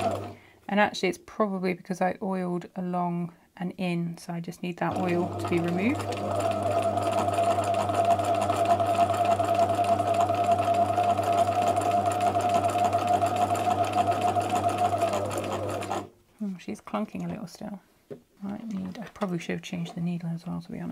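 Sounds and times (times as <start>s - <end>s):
sewing machine motor hum: 0.0s - 0.4s, 4.9s - 16.1s
sewing machine clunking: 4.9s - 16.1s.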